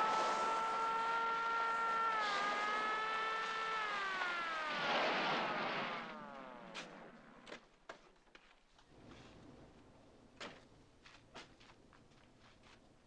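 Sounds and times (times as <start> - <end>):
police siren: 0.0 - 7.1.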